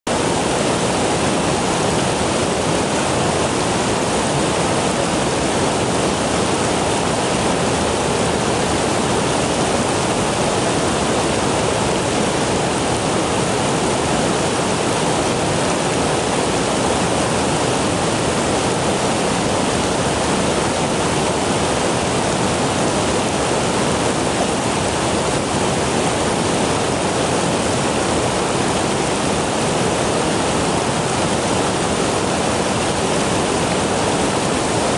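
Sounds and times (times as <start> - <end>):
river water rushing: 0.1 - 34.9.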